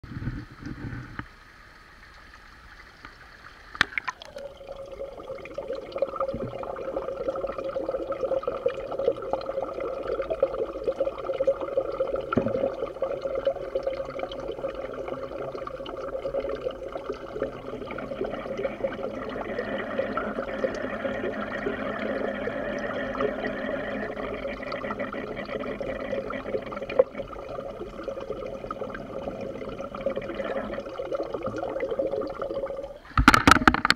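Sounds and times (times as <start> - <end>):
underwater bubbling and gurgling: 0.0 - 33.9
water splashing: 0.4 - 9.6.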